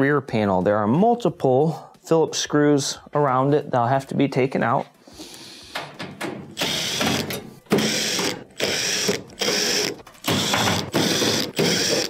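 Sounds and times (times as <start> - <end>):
cordless drill running in bursts: 6.6 - 7.2, 7.8 - 12.0.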